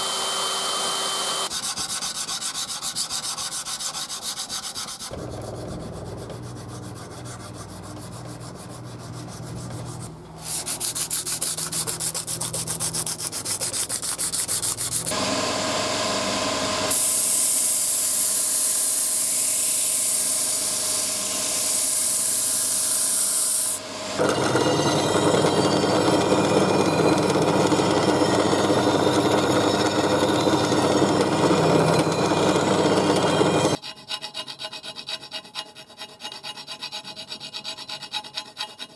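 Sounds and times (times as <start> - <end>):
abrasive sanding: 1.5 - 15.2.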